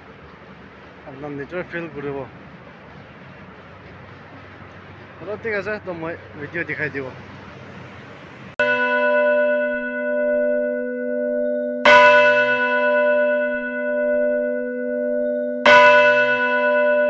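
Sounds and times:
church bell tolling: 8.6 - 17.0.

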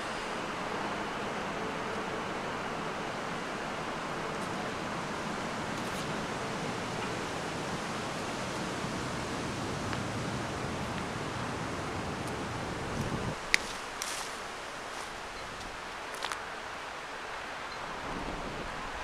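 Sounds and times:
wind rushing on microphone: 4.6 - 13.5, 17.9 - 19.0.

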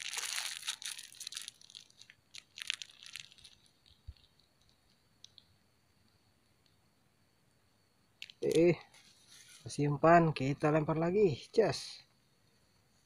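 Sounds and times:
rustling and crinkling handling noise: 0.0 - 5.3, 8.2 - 9.8
faint clicks: 3.8 - 5.5, 6.6 - 6.8.

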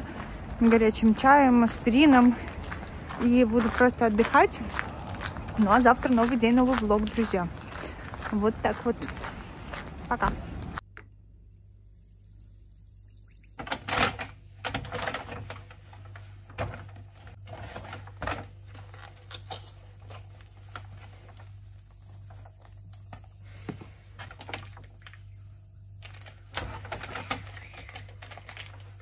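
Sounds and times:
steady low hum: 0.0 - 29.0
paper bag rustling: 26.0 - 29.0.

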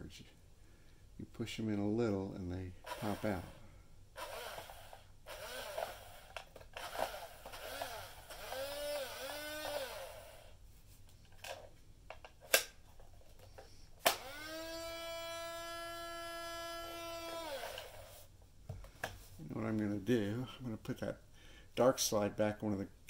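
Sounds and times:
camera motor whirring: 4.2 - 10.5, 14.1 - 18.2.

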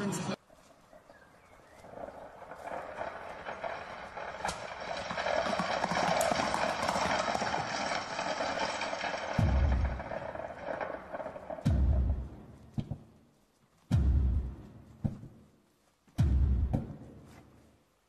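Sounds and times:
short deep thud: 16.2 - 17.1.

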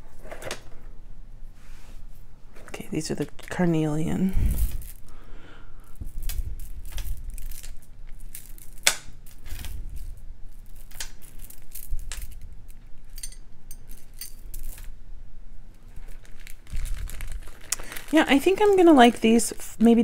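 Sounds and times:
beads clicking and clinking: 4.4 - 5.2, 5.8 - 15.0, 15.8 - 19.4.

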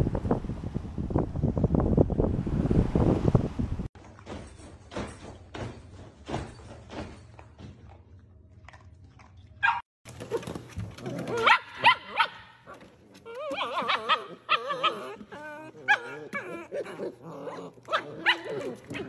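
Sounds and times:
puppies yipping and barking: 9.6 - 19.0.

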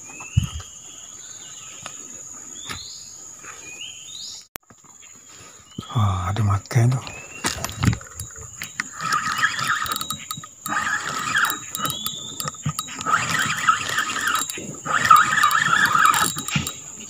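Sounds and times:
fishing reel gears whirring: 7.2 - 17.0.

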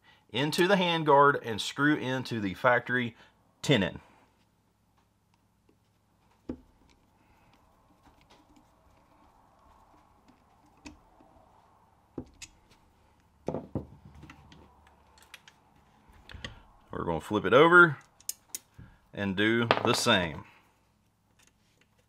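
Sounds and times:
screwdriver clicks and taps: 10.2 - 11.0.

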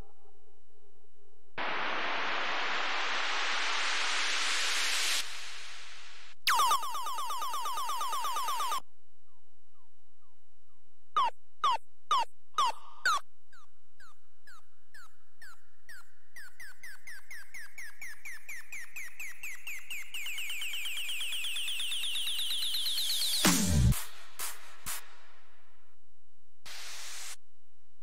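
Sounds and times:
electronic snare roll rising: 1.6 - 8.8, 20.4 - 25.1.

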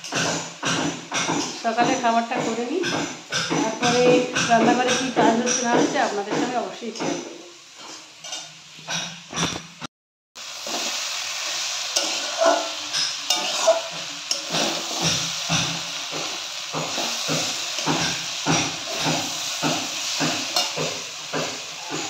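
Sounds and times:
food sizzling in oil: 0.0 - 9.8, 10.4 - 22.0
metal spatula scraping pan: 3.6 - 9.6, 10.6 - 22.0.

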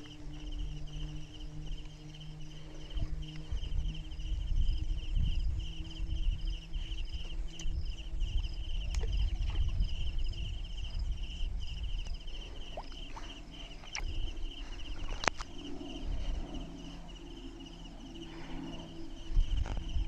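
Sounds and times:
insects chirping in a fast trill: 0.0 - 20.0
low rumbling noise: 0.0 - 20.0.

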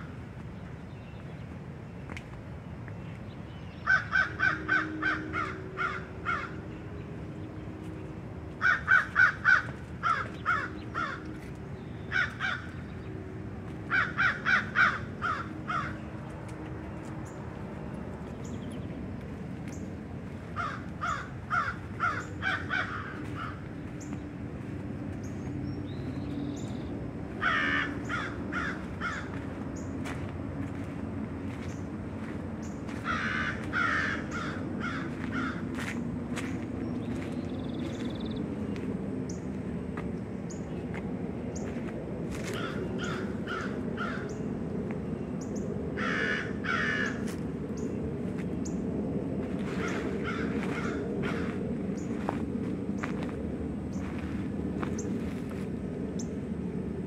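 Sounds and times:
crow cawing: 3.8 - 6.6, 8.6 - 11.2, 12.1 - 12.8, 13.9 - 16.0, 20.6 - 23.6, 27.4 - 29.4, 32.9 - 35.6, 42.5 - 44.3, 46.0 - 47.3, 49.8 - 51.6.

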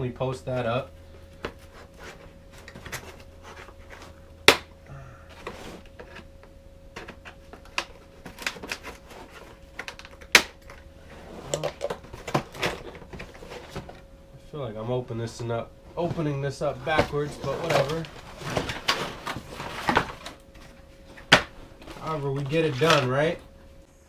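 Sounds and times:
cardboard box rustling: 15.4 - 23.4.

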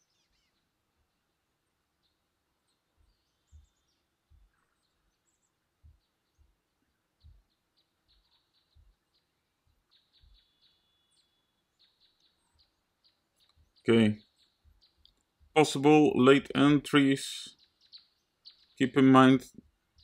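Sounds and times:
soft low thumps: 2.9 - 10.4
faint clicks: 15.0 - 15.3.

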